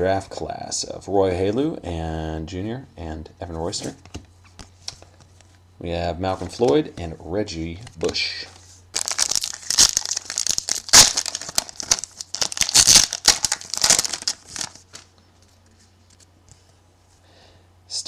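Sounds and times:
foil wrapper tearing and crinkling: 8.9s - 15.1s.

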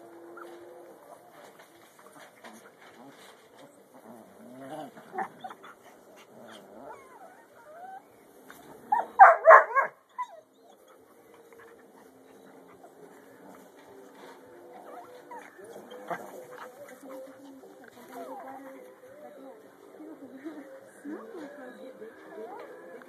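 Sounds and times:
dogs whining: 4.0s - 19.6s
dogs barking rapidly: 9.0s - 10.0s.

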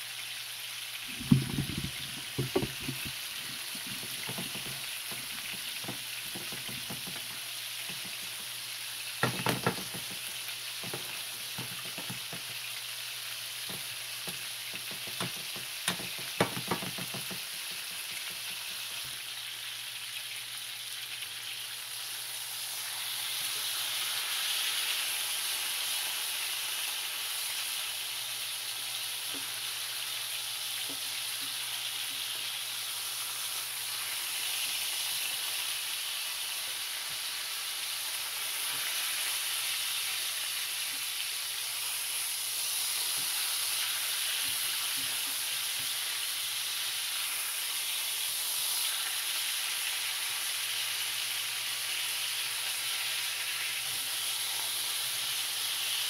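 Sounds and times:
food sizzling in pans: 0.0s - 56.0s
wooden spoon scraping a pan: 1.1s - 8.4s.

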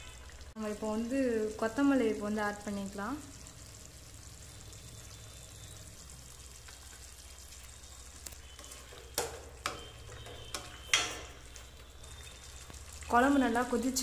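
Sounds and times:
curry simmering with faint hiss: 0.0s - 14.0s
ladle scraping and knocking pan: 8.6s - 11.4s.

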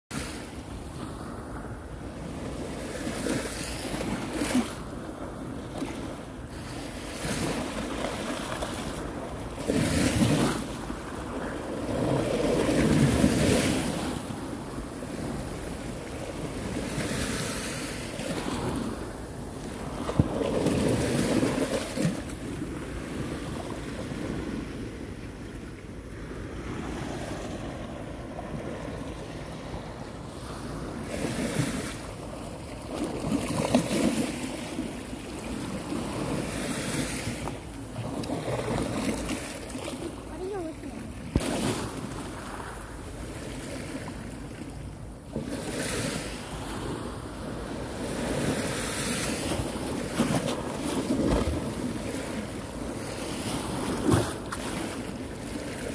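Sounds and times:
waves washing against steps: 6.6s - 24.6s, 30.4s - 42.8s.

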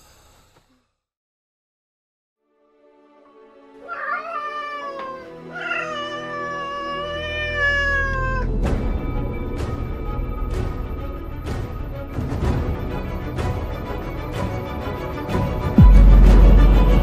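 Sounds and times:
music: 2.4s - 17.0s
cat meowing: 3.8s - 8.5s
heavy booming hits: 15.8s - 17.0s.

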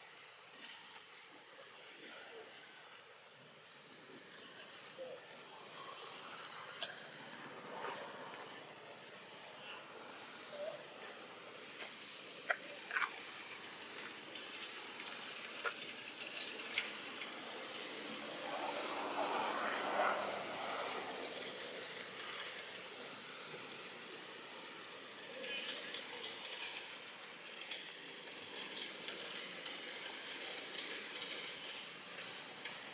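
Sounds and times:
outdoor background hiss: 0.0s - 32.9s
thin high-pitched whine: 0.0s - 32.9s.

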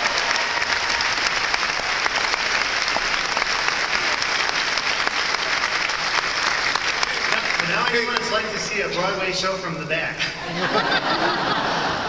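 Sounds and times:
large audience applauding: 0.0s - 9.3s.

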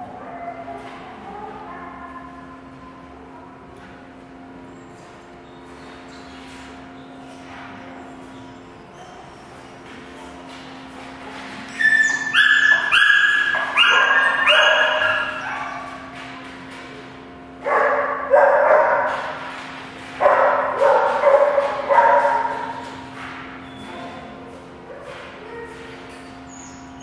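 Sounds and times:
dog barking in high yips: 11.7s - 16.1s, 17.7s - 19.3s, 20.2s - 22.8s.

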